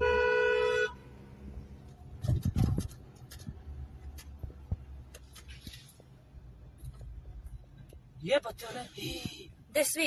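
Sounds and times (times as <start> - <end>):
car horn honking: 0.0 - 1.2.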